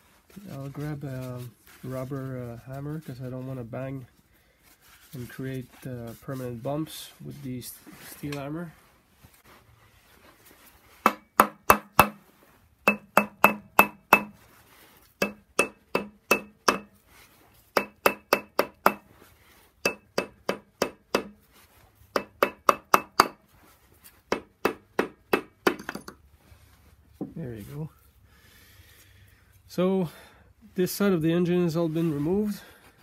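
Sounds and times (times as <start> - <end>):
rubber mallet striking metal pulley: 11.1 - 12.2, 12.9 - 14.4, 15.2 - 16.9, 17.8 - 19.1, 19.9 - 21.4, 22.2 - 23.4.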